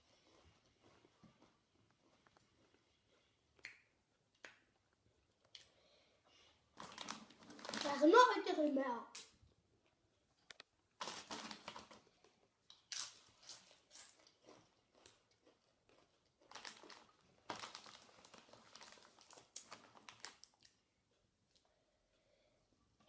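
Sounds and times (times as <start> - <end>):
chip bag crinkling: 6.8 - 8.5, 11.0 - 20.8.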